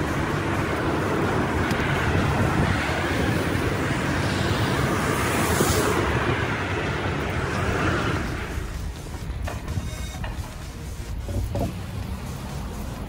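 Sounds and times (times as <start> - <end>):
wind buffeting microphone: 0.0 - 9.9
road traffic noise: 0.0 - 13.0.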